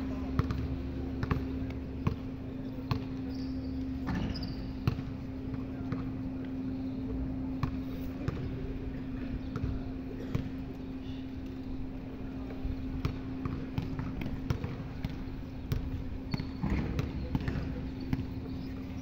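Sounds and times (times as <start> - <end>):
steady low hum: 0.0 - 19.0
basketball bouncing on concrete: 0.3 - 3.2, 4.0 - 6.1, 7.6 - 8.6, 13.0 - 18.6.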